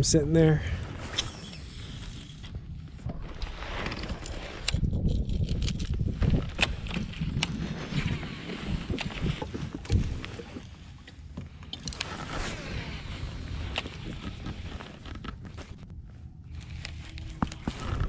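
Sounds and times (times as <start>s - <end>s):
wind on microphone: 0.0s - 10.7s, 11.9s - 18.0s
clicks and knocks of fishing gear: 3.2s - 12.4s, 13.7s - 18.0s.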